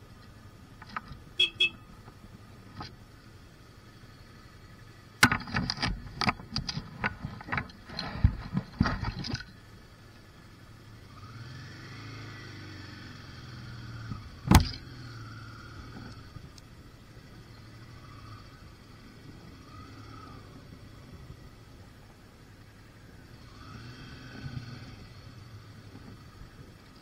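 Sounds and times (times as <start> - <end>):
sharp clicks and knocks: 5.2 - 9.5.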